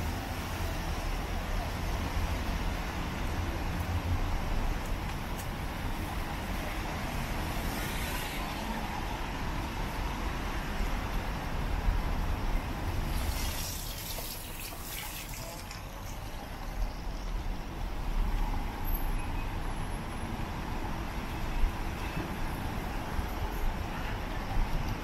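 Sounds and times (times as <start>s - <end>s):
traffic rumble: 0.0s - 25.0s
tyres hissing on wet road: 5.8s - 17.4s.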